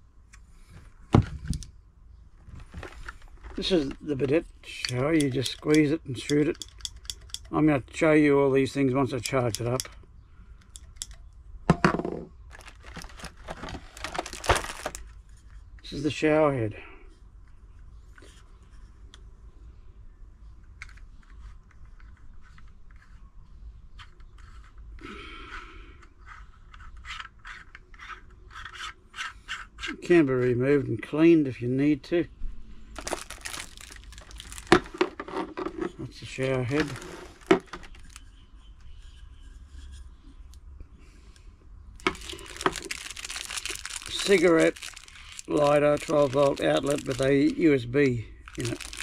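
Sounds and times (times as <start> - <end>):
plastic scrape: 2.4 - 4.1, 12.5 - 15.5, 33.0 - 38.3, 42.0 - 47.3
plastic rubbing and rustling: 2.4 - 5.9, 12.5 - 16.1, 33.0 - 38.4, 42.0 - 49.0
plastic shower head clicks and rubbing: 4.8 - 7.5.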